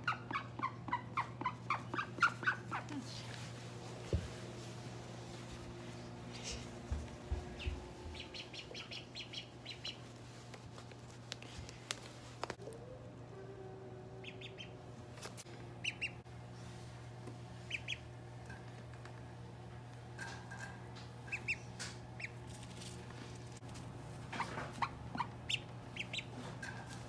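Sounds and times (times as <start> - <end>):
steady low hum: 0.0 - 27.0
duckling call chirps: 8.2 - 10.0, 14.2 - 14.7, 15.8 - 16.2, 17.7 - 18.0, 24.8 - 26.3.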